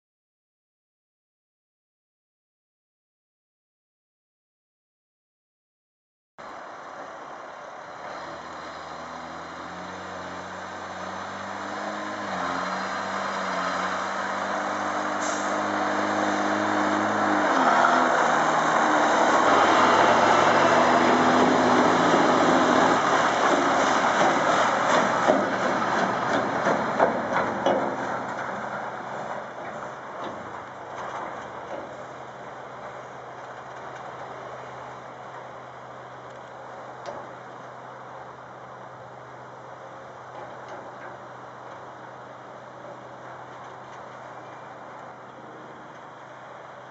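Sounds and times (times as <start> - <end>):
diesel truck engine passing: 6.4 - 46.9
clanks and rattles: 23.4 - 32.2.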